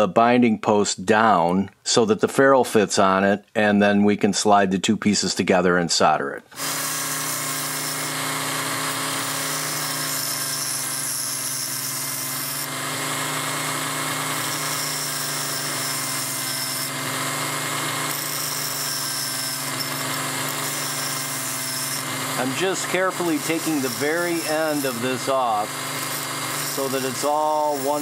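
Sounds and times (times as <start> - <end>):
rotary tool grinding metal: 6.5 - 28.0.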